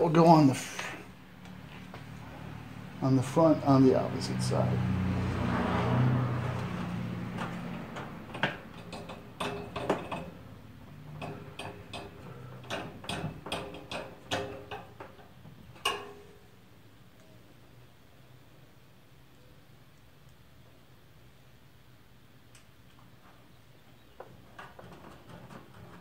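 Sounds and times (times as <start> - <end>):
metal clicks and taps: 7.4 - 10.4, 11.2 - 15.2.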